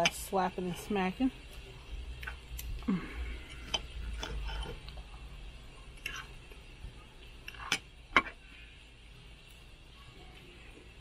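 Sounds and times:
knife and fork scraping plate: 3.6 - 4.8.

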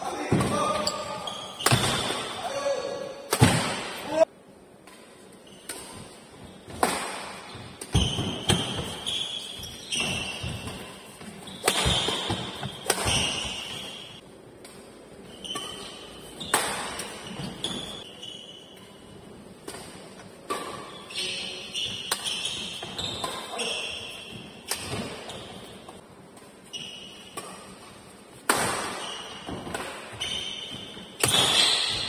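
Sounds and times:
shoes squeaking on court: 0.2 - 2.4, 7.4 - 14.2, 15.2 - 28.2, 29.0 - 32.0
rackets hitting shuttlecock: 0.3 - 2.4, 3.2 - 4.2, 4.8 - 14.9, 15.5 - 18.1, 21.8 - 25.4, 27.2 - 32.0.

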